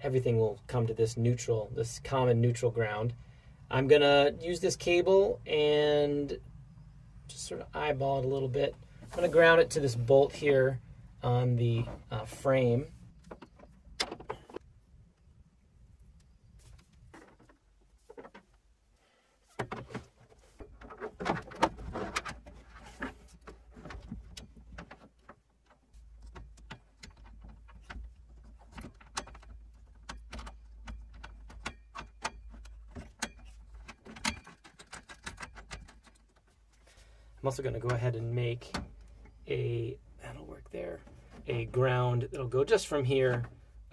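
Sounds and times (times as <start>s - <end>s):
faint low rumble: 0.0s - 19.0s
tool and wire handling clicks: 23.0s - 36.5s.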